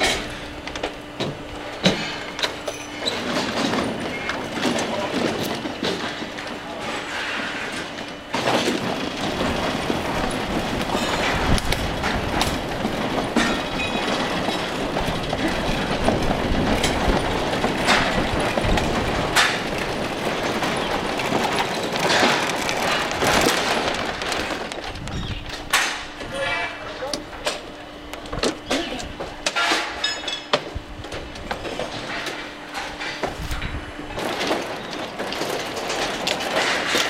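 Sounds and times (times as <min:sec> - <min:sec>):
metal framework rattling and rumbling: 0:00.0 - 0:37.0
sharp metal knocks and clanks: 0:28.7 - 0:30.7.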